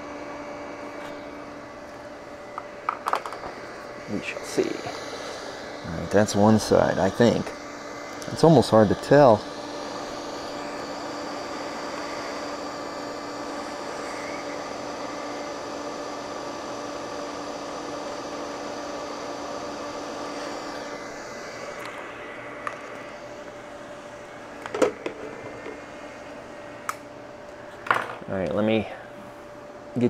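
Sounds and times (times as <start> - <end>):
hot-air gun fan whirring: 0.0 - 30.0
tool set down clack: 27.8 - 28.2.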